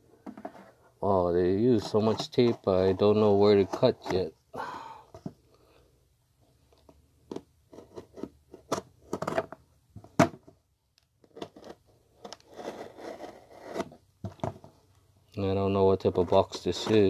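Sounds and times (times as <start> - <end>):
hands scratching cardboard parcel: 1.5 - 4.2, 11.3 - 14.0.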